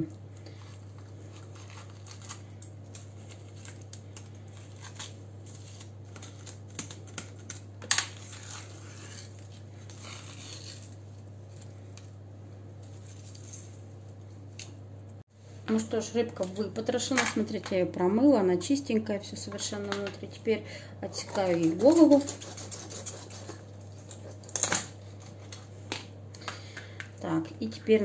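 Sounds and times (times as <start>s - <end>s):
steady low hum: 0.0s - 28.0s
knife scraping on plastic board: 21.4s - 23.7s.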